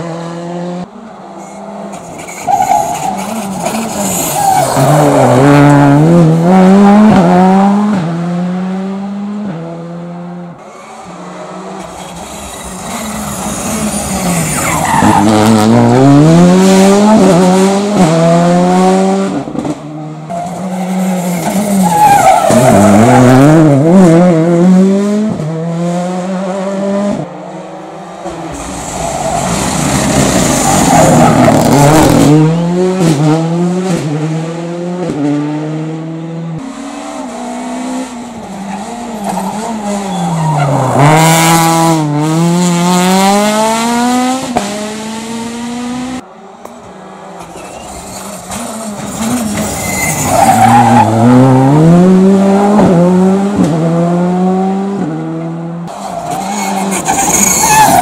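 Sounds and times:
rally car engines revving: 0.0s - 58.0s
tyre squeal: 1.4s - 5.2s, 11.8s - 15.6s, 20.3s - 23.2s, 38.6s - 41.2s, 47.4s - 51.3s, 55.9s - 58.0s.

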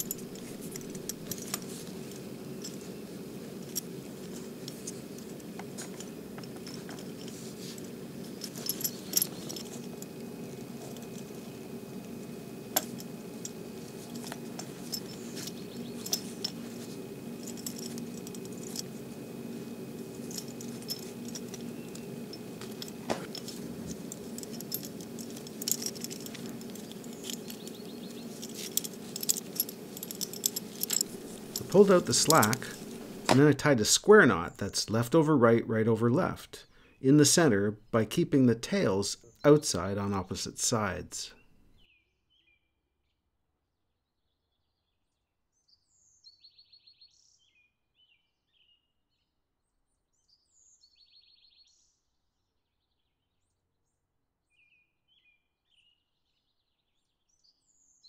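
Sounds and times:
cord pulled through collar: 0.0s - 33.4s
metal buckle jingling and clicking: 0.0s - 33.5s
steady low hum: 0.0s - 41.8s.

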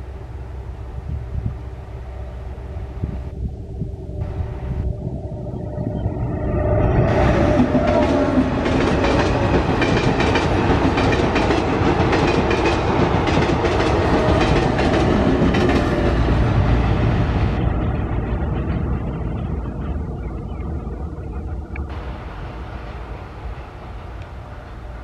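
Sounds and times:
distant train rumble: 0.0s - 25.0s
train wheels clattering over rail joints: 7.8s - 16.2s.

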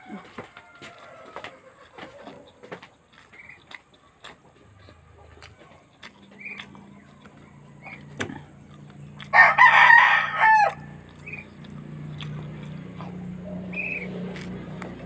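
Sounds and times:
rooster crowing: 0.0s - 2.6s, 9.2s - 11.2s.

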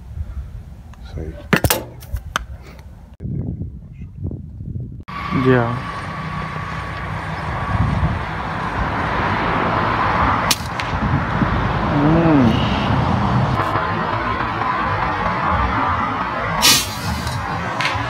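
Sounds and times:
wind on microphone: 0.0s - 13.7s.

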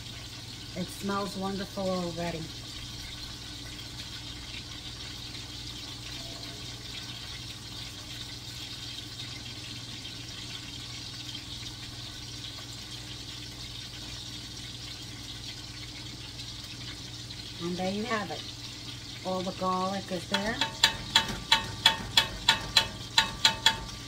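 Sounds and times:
sausages sizzling in a frying pan: 0.0s - 24.0s
low steady hum: 16.0s - 24.0s.

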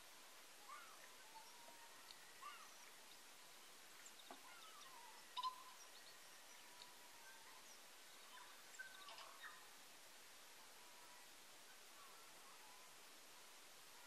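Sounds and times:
steady hiss: 0.0s - 14.0s
faint bird chirps and whistles: 0.6s - 9.8s.

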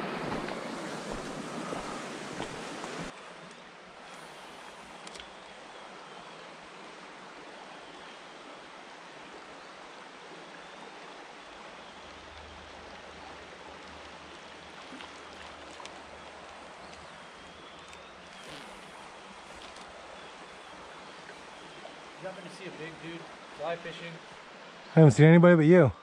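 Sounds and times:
creek water rushing: 0.0s - 26.0s
faint clicks: 2.4s - 5.5s.

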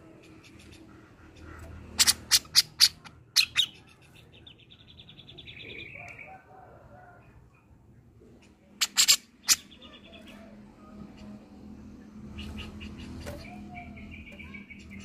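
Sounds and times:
bird harsh chattering calls: 0.2s - 4.6s, 8.8s - 10.4s.

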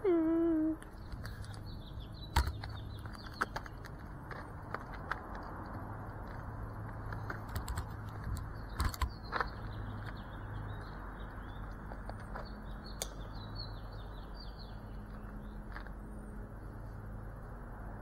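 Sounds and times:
small birds chirping: 0.0s - 5.0s, 6.4s - 16.8s
sharp clicks and knocks: 2.3s - 10.2s.

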